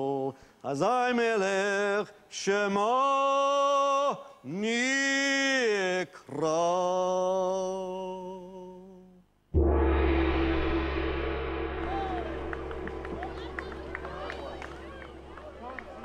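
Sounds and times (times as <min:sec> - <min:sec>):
outdoor low rumble: 0:09.6 - 0:16.0.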